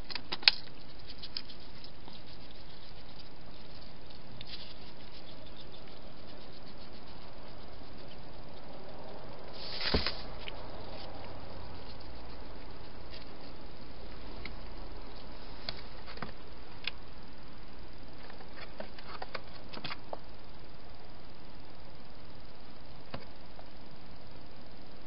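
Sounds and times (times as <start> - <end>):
small clicks and crackles: 0.0 - 13.6
hedgehog rustling and scraping: 0.0 - 16.5
steady hiss: 0.0 - 25.0.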